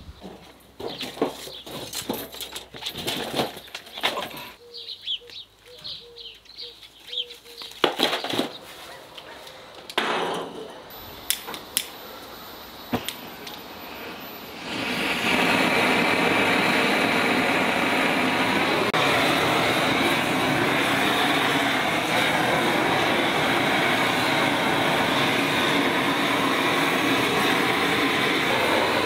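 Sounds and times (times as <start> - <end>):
small bird chirping: 4.6 - 7.8.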